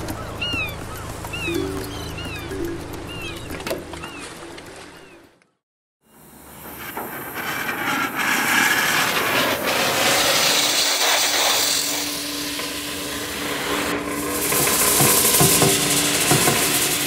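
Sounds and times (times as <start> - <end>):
sandblasting hiss: 6.2 - 17.0.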